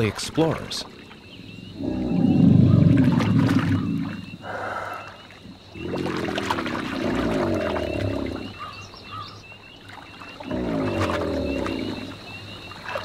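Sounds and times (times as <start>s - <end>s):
alligator bellowing: 1.4s - 9.2s, 10.4s - 12.4s.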